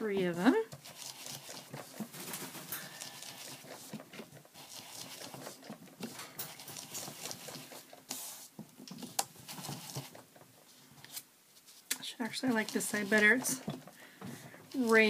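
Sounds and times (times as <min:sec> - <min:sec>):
foam scratching and tapping on paper: 0:00.7 - 0:10.3.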